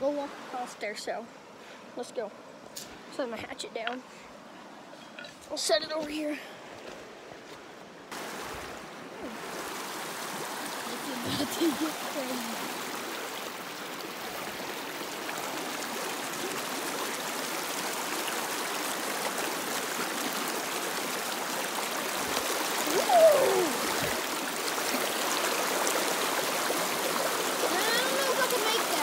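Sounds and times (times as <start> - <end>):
creek water rushing over rocks: 0.0 - 29.0
short falling cry: 22.8 - 24.2.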